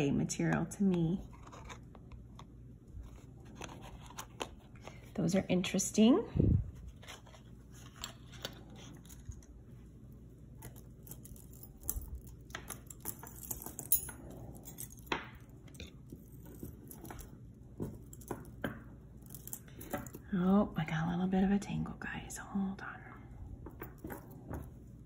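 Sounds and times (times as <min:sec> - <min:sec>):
metal chain clinking: 0:10.6 - 0:18.6, 0:19.2 - 0:20.3.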